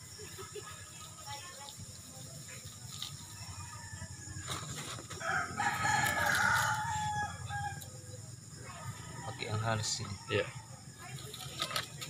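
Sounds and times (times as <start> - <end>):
rooster crowing: 3.3 - 4.5, 5.1 - 8.0, 8.8 - 10.7.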